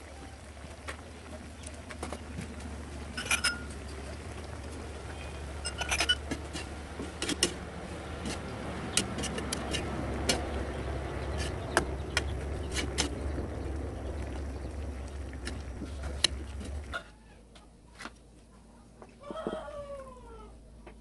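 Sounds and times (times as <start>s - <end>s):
steady low hum: 0.0s - 18.8s
metal ladle scraping a pan: 3.1s - 4.1s, 5.1s - 13.3s.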